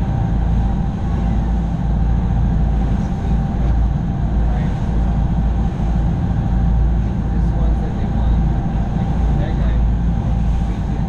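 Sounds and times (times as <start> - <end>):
boat engine rumble: 0.0 - 11.0
water rushing past hull: 0.0 - 11.0.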